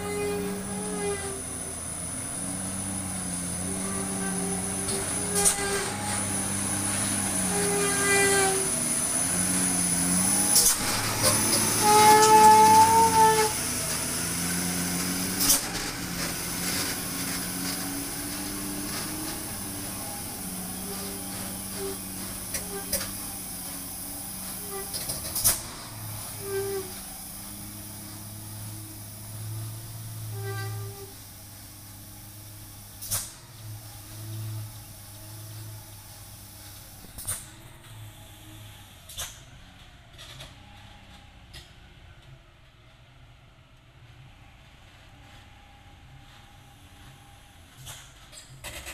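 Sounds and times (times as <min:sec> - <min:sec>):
sharp hiss: 0:00.0 - 0:38.6
diesel truck engine labouring: 0:00.0 - 0:48.9.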